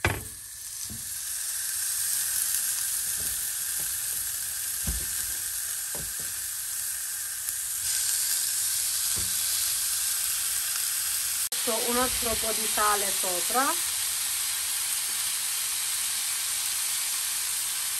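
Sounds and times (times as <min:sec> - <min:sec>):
meat sizzling on a grill pan: 0:00.0 - 0:17.9
soft knocks of meat handled: 0:04.8 - 0:05.3.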